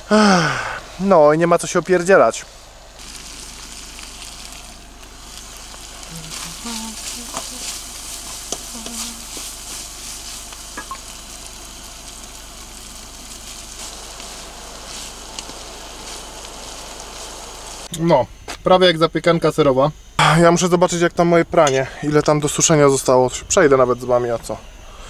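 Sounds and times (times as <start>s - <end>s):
food sizzling in a pan: 3.0s - 17.9s
wooden spatula scraping a pan: 4.8s - 11.6s.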